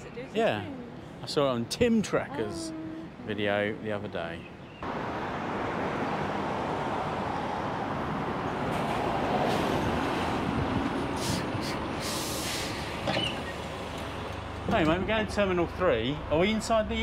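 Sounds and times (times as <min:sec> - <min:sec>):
air brake hisses: 0:11.2 - 0:12.9.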